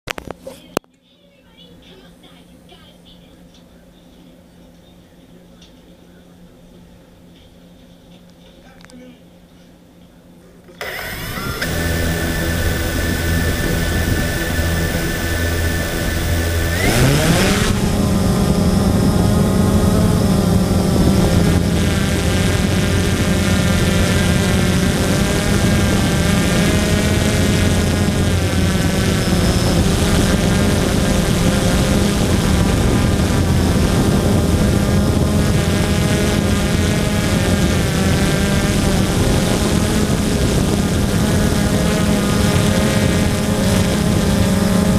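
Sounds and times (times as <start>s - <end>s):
quadcopter propellers whining: 10.7s - 44.9s.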